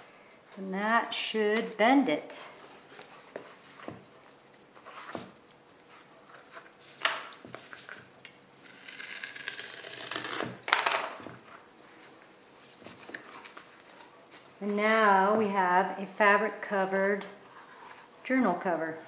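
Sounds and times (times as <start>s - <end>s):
paper rubbing and rustling: 11.4s - 16.0s, 16.8s - 18.3s.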